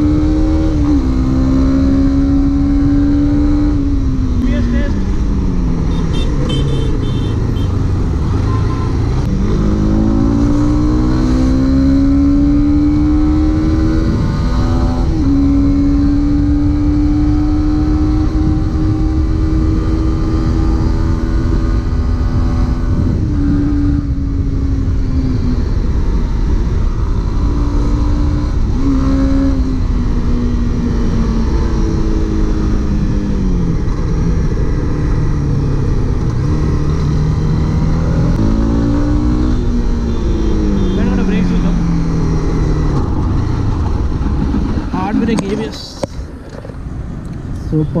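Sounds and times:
motorcycle engine revving: 0.0s - 48.0s
road noise: 0.0s - 48.0s
wind rush: 20.4s - 27.6s, 41.9s - 48.0s.

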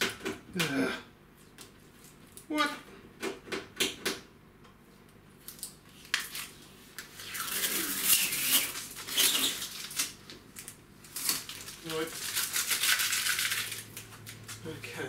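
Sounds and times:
packing tape ripping: 5.4s - 14.6s.

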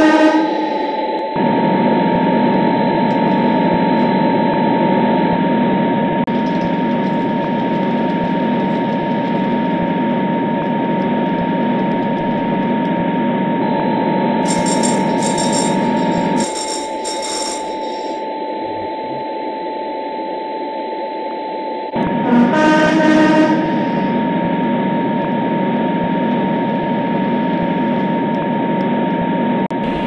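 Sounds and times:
electric locomotive hum and whine: 0.0s - 30.0s
ringing bell: 14.4s - 18.3s.

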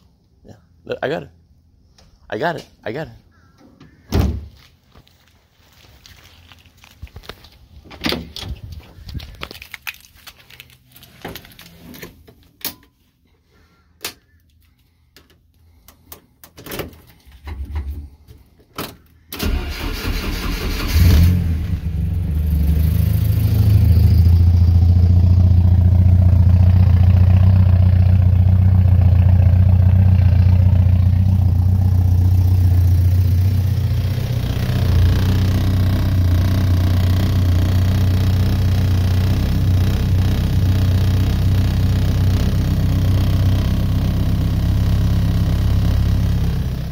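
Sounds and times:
car engine starting and idling: 19.3s - 46.9s.

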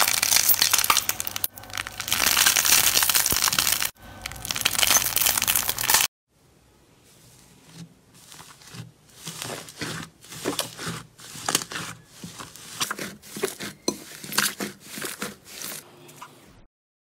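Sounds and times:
slime crackling and popping: 0.0s - 6.1s.

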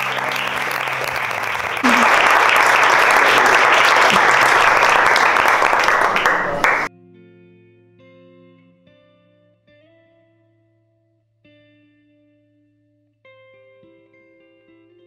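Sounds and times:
crowd applauding: 0.0s - 6.9s.

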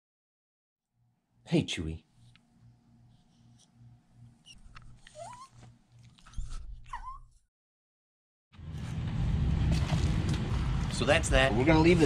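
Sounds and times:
small dog whining: 4.4s - 7.4s.

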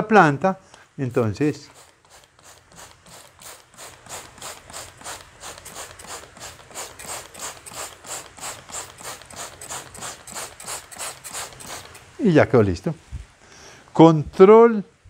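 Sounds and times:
spray bottle click and hiss: 1.7s - 12.2s.

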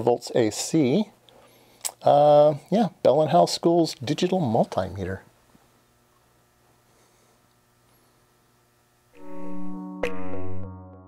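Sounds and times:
music with held notes: 9.2s - 11.0s.

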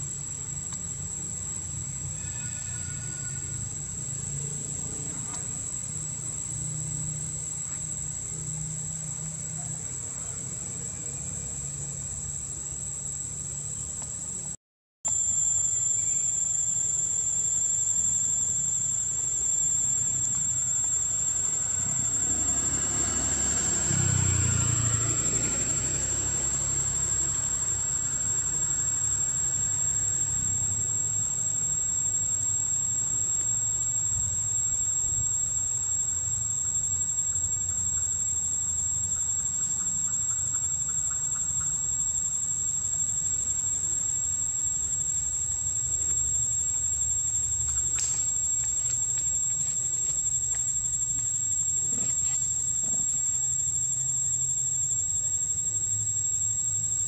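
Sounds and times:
insects droning: 0.0s - 57.0s
vehicle passing by: 21.1s - 30.8s.

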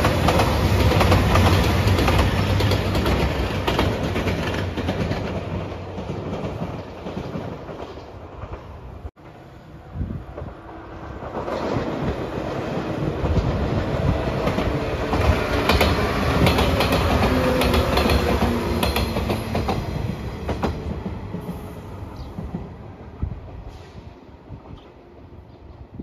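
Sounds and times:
wheels clacking over rail joints: 0.0s - 9.1s, 11.2s - 21.7s
electric train passing: 0.0s - 25.4s.

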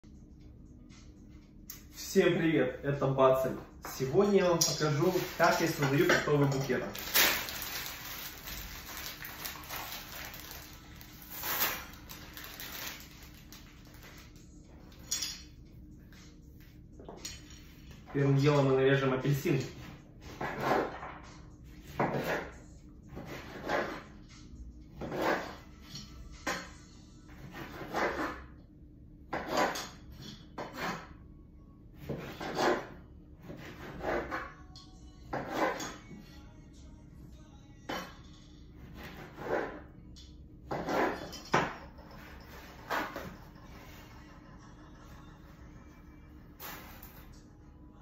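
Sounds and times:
hands rustling plastic item: 4.8s - 14.4s.

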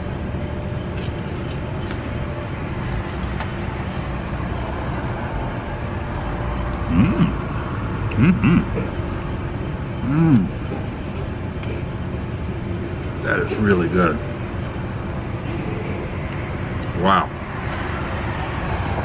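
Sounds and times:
street traffic noise: 0.0s - 19.0s
man humming while chewing: 6.8s - 7.5s, 8.1s - 9.0s, 10.0s - 10.6s.

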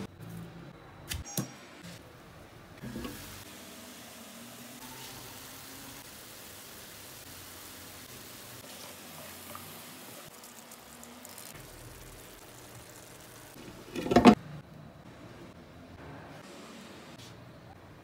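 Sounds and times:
sauce simmering: 5.6s - 14.0s.

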